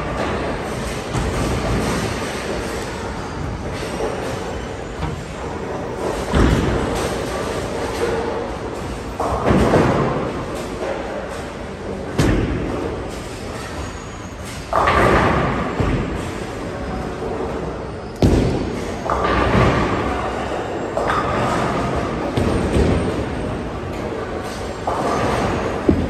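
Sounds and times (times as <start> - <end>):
bowling balls crashing into pins: 0.0 - 8.4, 24.2 - 26.0.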